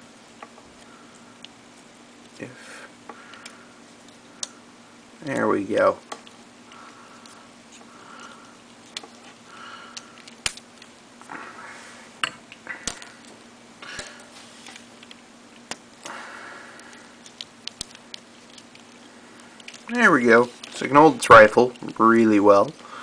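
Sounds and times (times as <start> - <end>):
faint steady hum: 0.0 - 23.0
plastic rubbing and rustling: 17.2 - 22.8.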